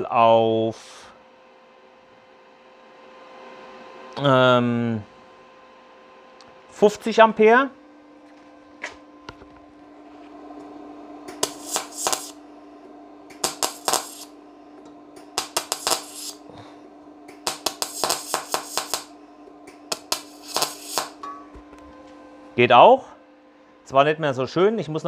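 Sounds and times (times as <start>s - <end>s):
welder hum: 9.3s - 22.6s
welding arc crackling: 11.3s - 12.4s, 13.3s - 14.5s, 15.2s - 16.5s, 17.3s - 21.2s.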